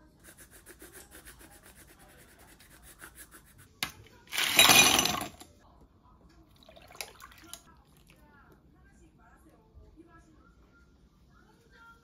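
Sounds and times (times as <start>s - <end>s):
ice cubes rattling into glass mug: 4.3s - 5.4s.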